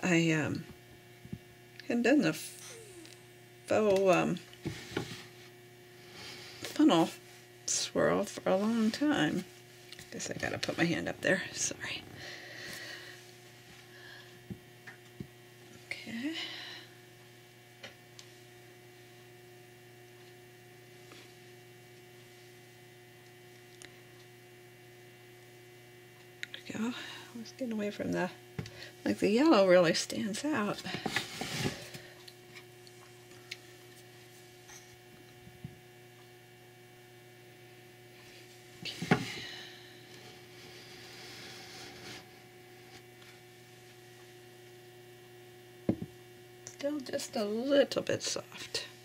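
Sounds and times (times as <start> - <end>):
low electrical hum: 0.0 - 49.0
faint scrape: 40.6 - 42.4.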